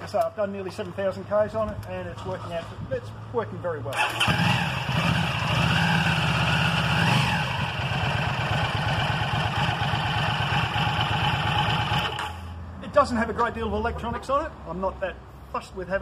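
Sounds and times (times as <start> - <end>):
motorcycle engine idling: 4.0 - 12.4.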